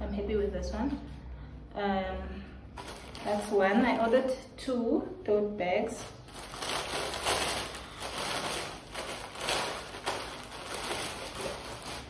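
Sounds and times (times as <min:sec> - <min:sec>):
packaging rustling: 0:02.8 - 0:04.2, 0:05.9 - 0:12.0.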